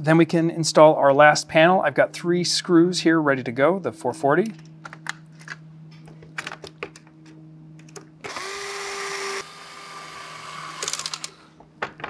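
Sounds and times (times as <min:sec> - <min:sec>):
electric screwdriver motor whining: 0:08.2 - 0:11.4.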